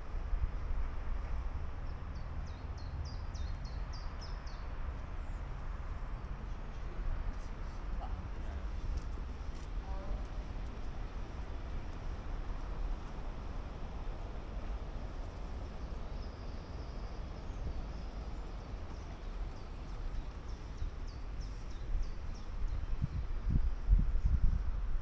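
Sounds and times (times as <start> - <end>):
steady low rumble: 0.0 - 25.0
small birds chirping: 15.3 - 23.3.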